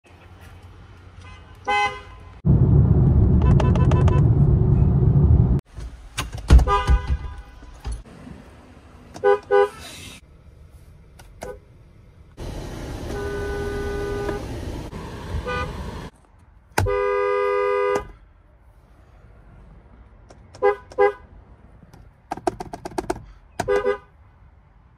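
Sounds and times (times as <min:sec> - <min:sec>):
car horns honking: 0:01.2 - 0:02.4, 0:03.4 - 0:04.4, 0:06.5 - 0:07.8, 0:09.2 - 0:10.0, 0:12.9 - 0:16.1, 0:16.8 - 0:18.2, 0:20.6 - 0:21.3, 0:23.6 - 0:24.1.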